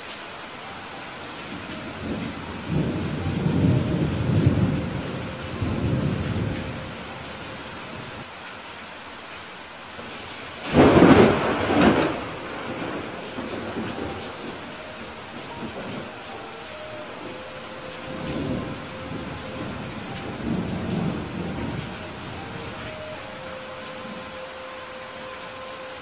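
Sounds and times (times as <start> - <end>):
rain hissing: 0.0 - 26.0
low rumble of thunder: 1.8 - 7.3, 10.6 - 16.3, 17.0 - 22.8
sudden clap of thunder: 10.6 - 14.5.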